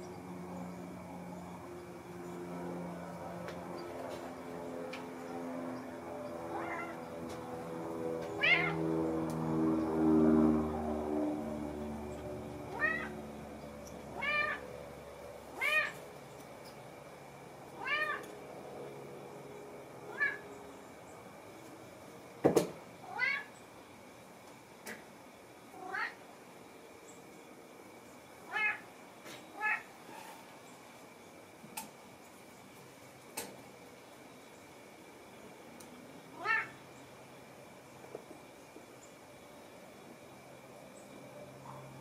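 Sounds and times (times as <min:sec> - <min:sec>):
cat meowing: 0:06.5 - 0:07.0, 0:08.4 - 0:08.8, 0:12.7 - 0:13.1, 0:14.2 - 0:14.6, 0:15.6 - 0:16.0, 0:17.8 - 0:18.2, 0:20.1 - 0:20.4, 0:23.1 - 0:23.5, 0:25.8 - 0:26.2, 0:28.5 - 0:28.8, 0:29.5 - 0:29.9, 0:36.4 - 0:36.8.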